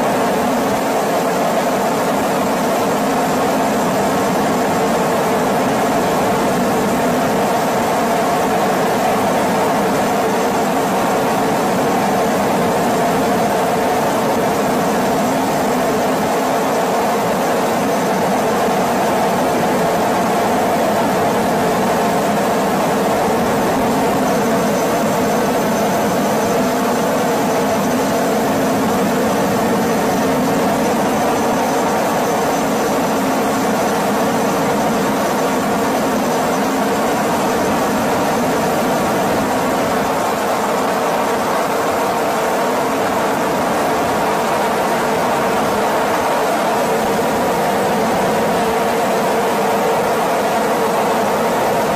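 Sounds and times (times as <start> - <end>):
faint high whine: 0.0 - 51.9
helicopter engine drone: 0.0 - 51.9.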